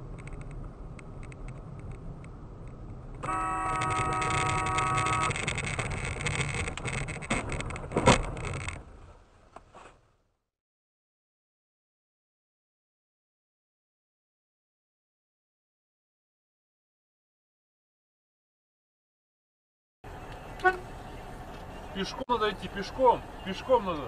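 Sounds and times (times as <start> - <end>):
car road and engine rumble: 0.0 - 10.4, 20.0 - 24.0
car horn: 3.2 - 5.4.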